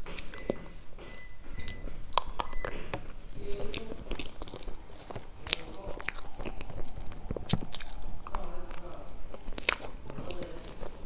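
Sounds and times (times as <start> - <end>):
person chewing cake: 0.0 - 11.0
wet mouth clicks and lip smacks: 1.6 - 11.0.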